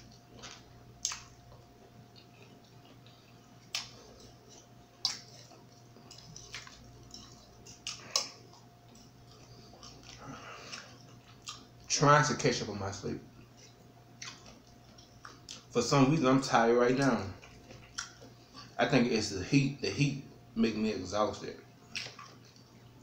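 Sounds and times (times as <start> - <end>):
person chewing food: 0.0 - 11.9, 13.3 - 15.7, 17.2 - 18.8, 21.8 - 23.0
faint steady hum: 0.0 - 23.0
sharp mouth clicks and smacks: 0.4 - 1.3, 3.7 - 8.4.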